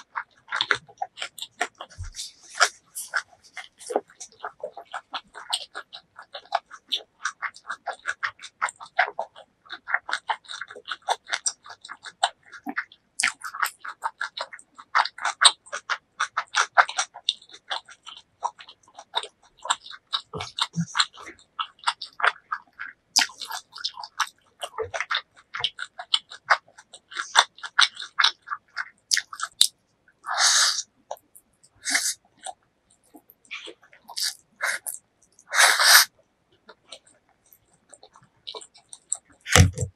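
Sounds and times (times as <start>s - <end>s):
wet chewing of noodles: 0.0s - 39.9s
hissy noodle slurp: 30.3s - 30.9s, 34.1s - 36.1s.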